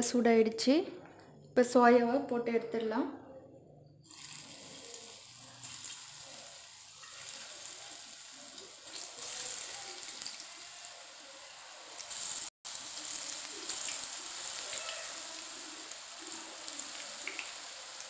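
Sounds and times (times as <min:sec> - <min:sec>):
oil sizzling and crackling: 0:04.0 - 0:18.0.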